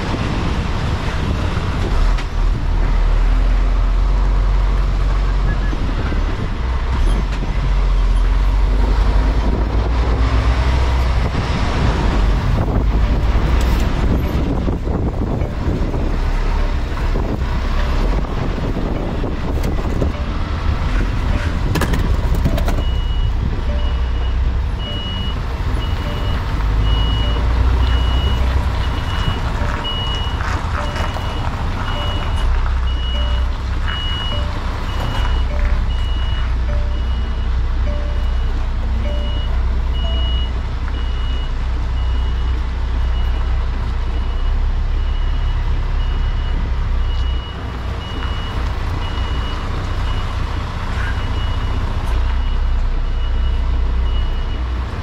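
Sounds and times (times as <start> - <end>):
diesel engine rumble: 0.0 - 55.0
reversing alarm beeping: 22.4 - 50.4, 51.0 - 54.8.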